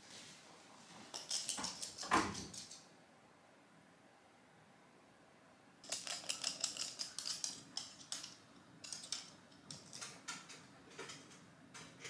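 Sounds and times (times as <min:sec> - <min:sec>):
dog claws clicking on hard floor: 0:01.1 - 0:02.9, 0:05.8 - 0:11.2.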